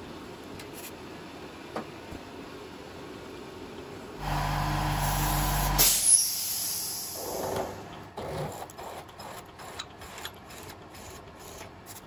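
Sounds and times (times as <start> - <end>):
loud steady hum with hiss: 0.0 - 8.1.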